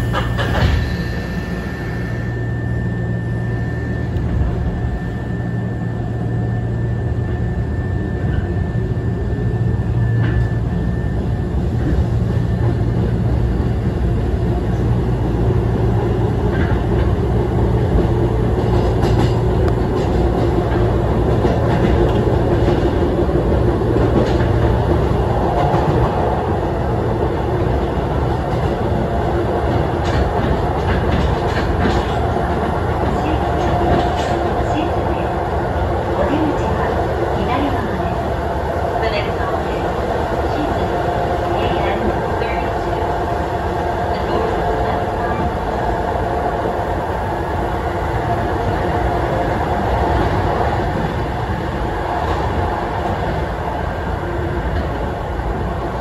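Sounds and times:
train running rumble: 0.0 - 56.0.

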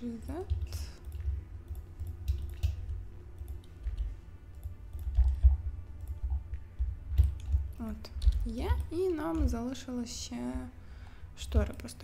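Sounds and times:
low thumps and rumble: 0.0 - 10.8
computer mouse clicks: 0.4 - 6.4.

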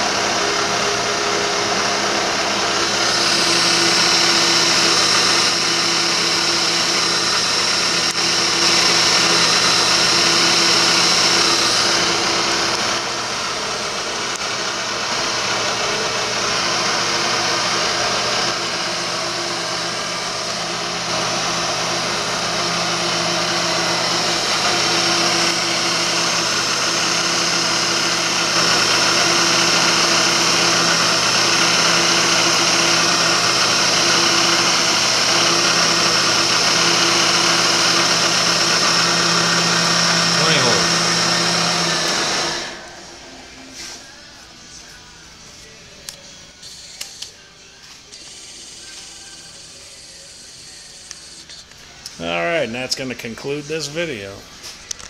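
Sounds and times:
constant whine: 0.0 - 16.4
mill spindle drilling metal: 0.0 - 43.4, 48.0 - 52.4.

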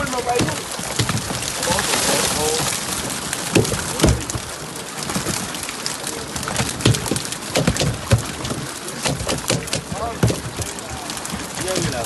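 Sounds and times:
louder knocks: 3.5 - 4.5, 6.5 - 10.8
fish flapping wet slaps: 6.4 - 12.0.

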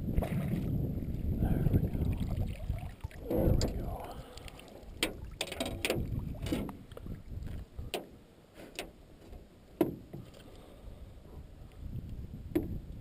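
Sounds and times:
net knocking on boat: 9.8 - 10.3.

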